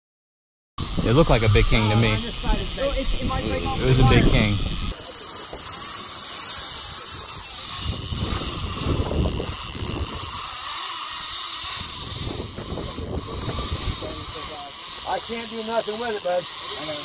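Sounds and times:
wind buffeting microphone: 0.8 - 5.8, 6.8 - 10.6, 11.6 - 14.6
sea wind and surf hiss: 0.8 - 17.0.

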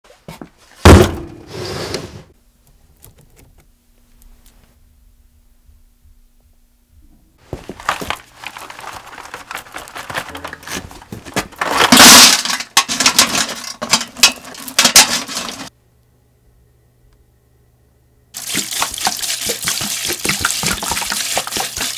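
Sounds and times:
chains dropped into steel bucket: 11.6 - 15.7.

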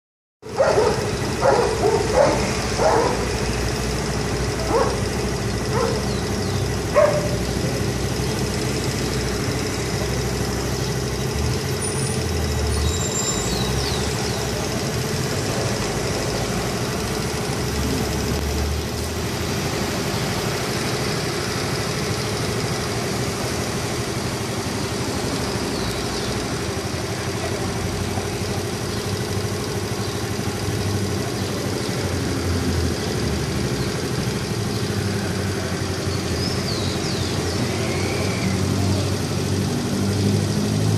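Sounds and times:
street traffic noise: 0.4 - 40.9
dogs barking: 0.5 - 3.6, 4.2 - 7.7.

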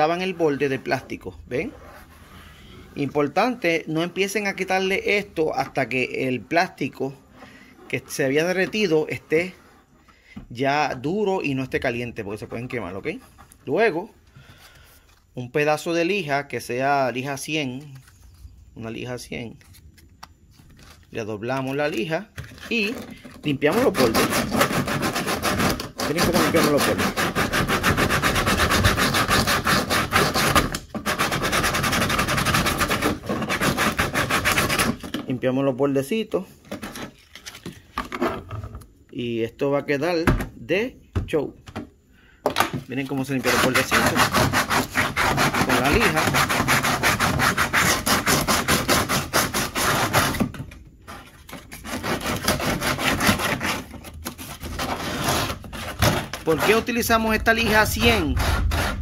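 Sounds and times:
sandpaper rasping on plastic: 0.0 - 5.2, 7.2 - 9.9, 21.6 - 35.1, 43.2 - 59.0.

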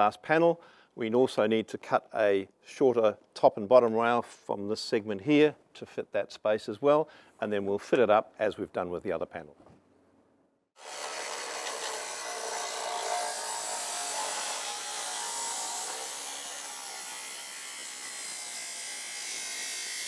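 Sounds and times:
angle grinder cutting steel: 10.8 - 20.0.

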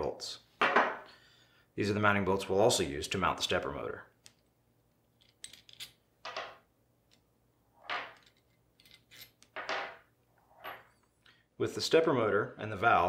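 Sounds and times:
metallic clicks and clinks: 5.1 - 6.4, 8.0 - 9.8.

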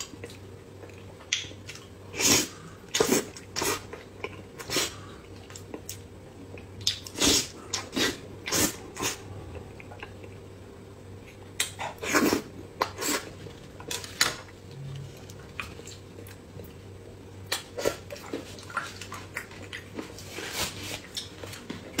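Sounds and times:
chewing and lip-smacking: 2.9 - 10.4, 17.4 - 20.4.

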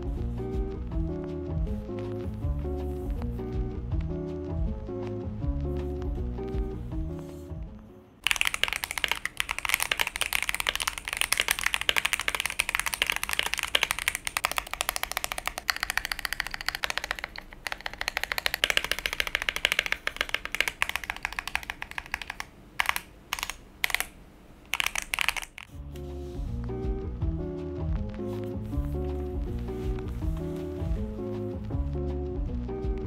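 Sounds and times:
mechanical keyboard typing: 8.2 - 25.7.

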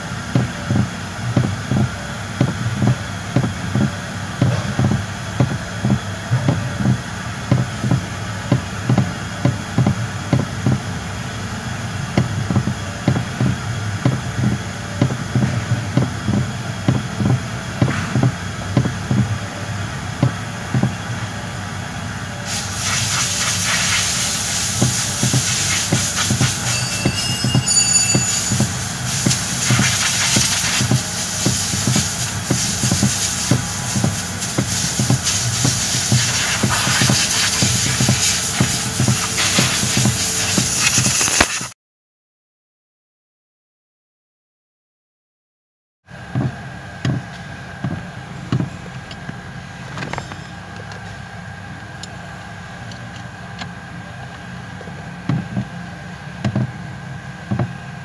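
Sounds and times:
steering column knocking: 0.3 - 10.9, 12.1 - 19.4, 24.8 - 40.7, 56.4 - 56.8, 57.5 - 57.8
steady hiss: 22.4 - 27.1, 28.2 - 41.7.

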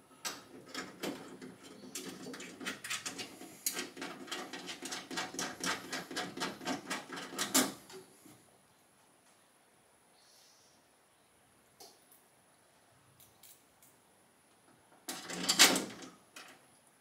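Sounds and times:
hand tools clicking and tapping: 0.2 - 8.0.

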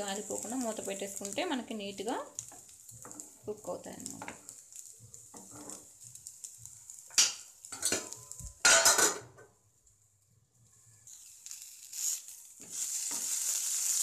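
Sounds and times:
spatula stirring beans in a pan: 0.0 - 9.0, 9.9 - 14.0
frying sizzle: 0.0 - 14.0
steel lid clattering against pan: 7.2 - 9.2.

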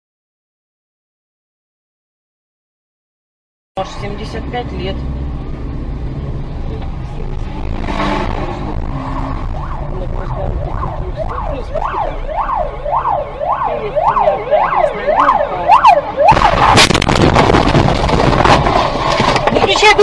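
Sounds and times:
ambulance siren yelping: 9.2 - 17.0
vehicle collision crash: 16.2 - 20.0.

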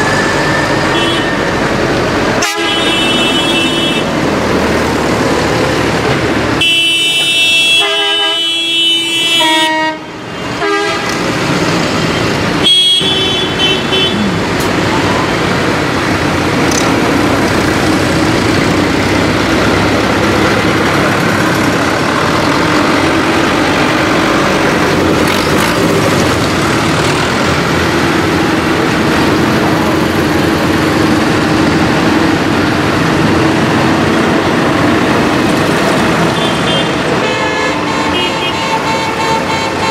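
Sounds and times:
tractor diesel engines: 0.0 - 39.9
horn changing pitch: 2.4 - 4.1.

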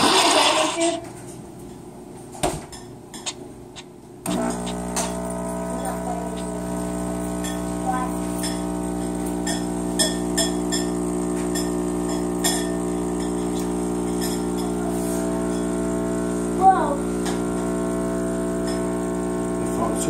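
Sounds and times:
espresso machine pump humming: 4.3 - 20.0.

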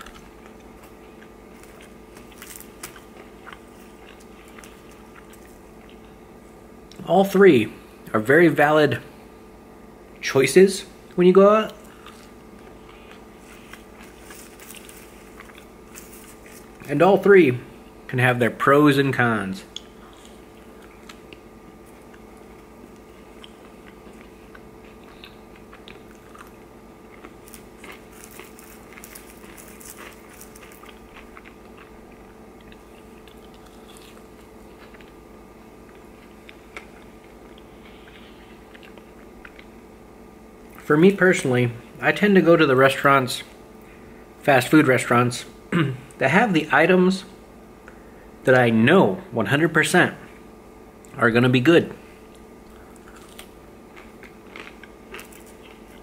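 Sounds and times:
person chewing food: 0.0 - 7.0, 11.8 - 16.9, 19.7 - 39.9, 52.2 - 56.0
steady low hum: 0.0 - 56.0.

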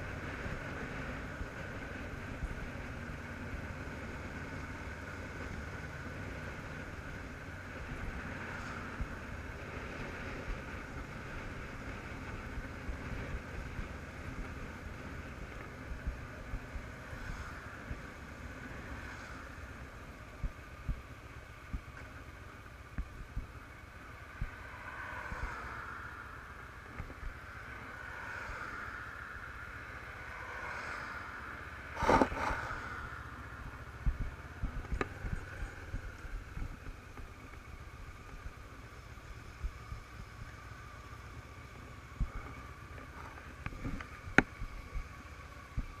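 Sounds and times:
motorcycle engine running: 0.0 - 24.8, 31.8 - 46.0
wind rumble: 0.0 - 46.0.

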